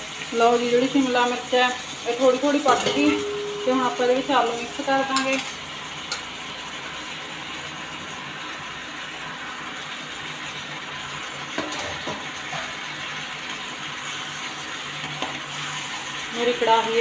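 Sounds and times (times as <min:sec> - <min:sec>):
vegetables sizzling in oil: 0:00.0 - 0:17.0
utensils knocking on pan: 0:02.6 - 0:06.3.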